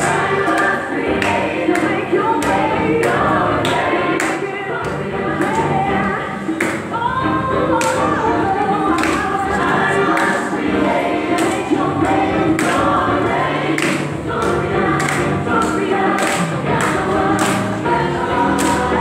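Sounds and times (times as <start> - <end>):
choir singing gospel: 0.0 - 19.0.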